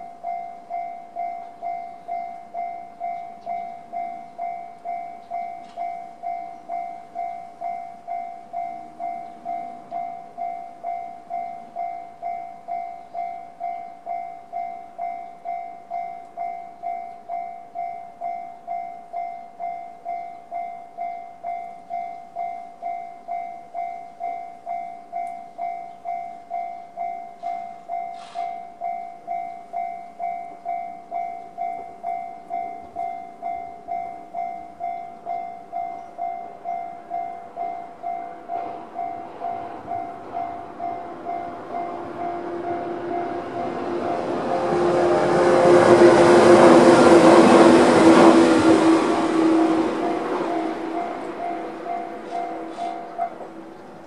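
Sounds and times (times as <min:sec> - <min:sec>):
train rumble: 0:00.0 - 0:54.0
level crossing bell dinging: 0:50.0 - 0:54.0.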